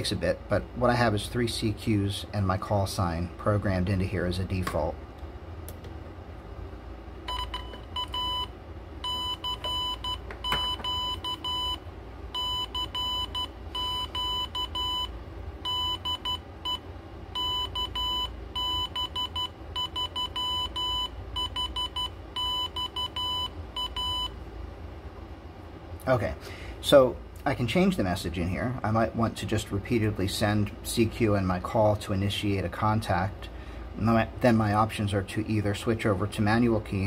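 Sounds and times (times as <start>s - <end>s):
morse code beeps: 7.3s - 11.8s, 12.4s - 16.8s, 17.4s - 24.3s.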